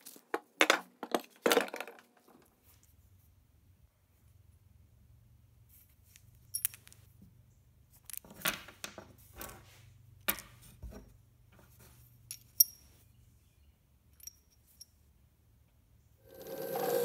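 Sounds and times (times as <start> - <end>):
metal clinks: 12.2 - 13.0, 14.1 - 15.0
screws rattling and scraping: 16.2 - 17.0.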